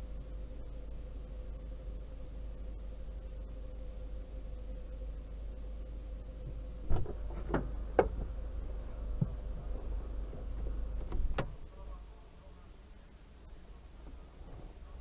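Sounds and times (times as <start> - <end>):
steady low hum: 0.0 - 15.0
knocks and clunks inside car: 6.4 - 8.4, 9.1 - 11.6.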